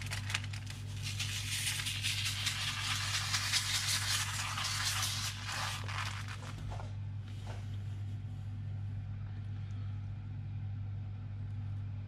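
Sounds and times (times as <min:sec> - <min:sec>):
salt pouring onto newspaper: 0:00.0 - 0:06.5
steady low hum: 0:00.0 - 0:12.0.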